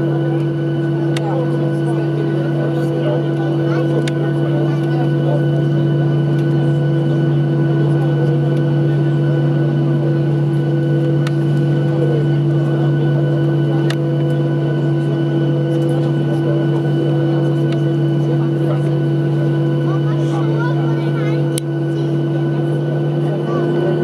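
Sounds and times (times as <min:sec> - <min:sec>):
airplane cabin engine drone: 0:00.0 - 0:24.0.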